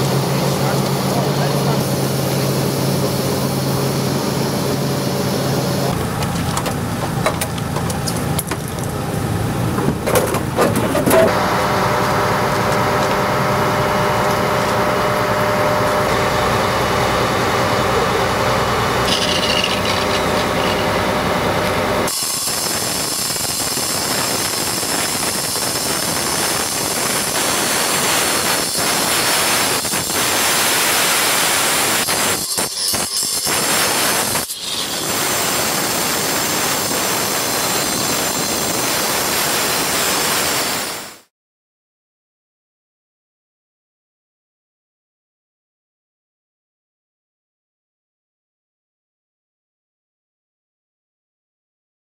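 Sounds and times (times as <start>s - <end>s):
engine and machinery hum: 0.0s - 41.2s
angle grinder cutting metal: 11.2s - 40.3s.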